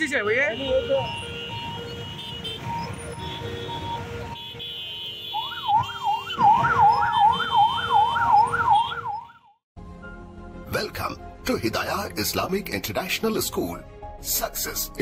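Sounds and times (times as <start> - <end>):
police siren wailing: 0.0 - 4.4, 5.1 - 9.6
traffic noise: 0.0 - 9.3.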